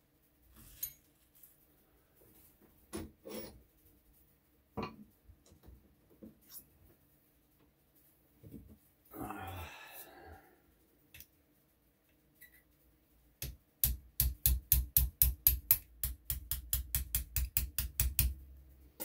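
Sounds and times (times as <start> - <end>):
small hammer tapping metal pin: 13.4 - 18.4.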